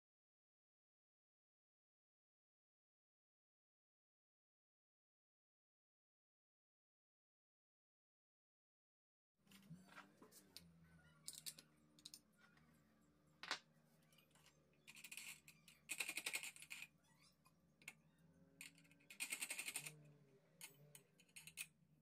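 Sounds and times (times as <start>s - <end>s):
small metal clicks and knocks: 10.5s - 12.2s, 13.4s - 16.9s, 18.6s - 20.0s, 20.6s - 21.8s.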